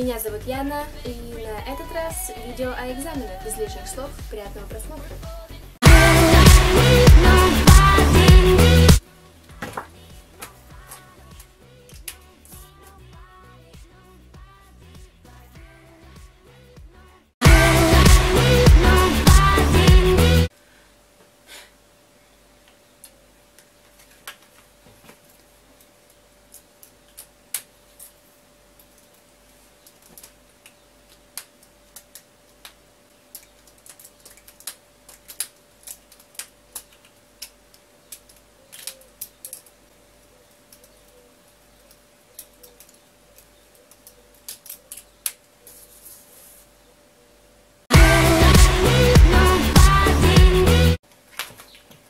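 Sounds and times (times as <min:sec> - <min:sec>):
faint hum: 0:20.5 - 0:48.8.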